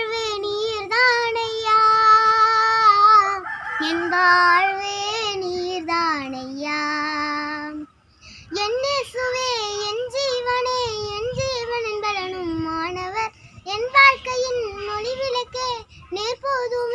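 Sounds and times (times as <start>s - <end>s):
girl singing unaccompanied: 0.0s - 16.9s.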